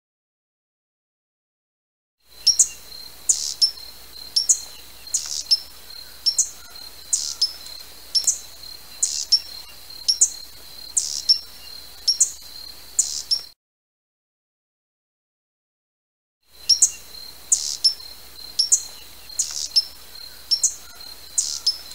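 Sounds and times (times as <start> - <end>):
hummingbird chips: 2.4 - 11.4.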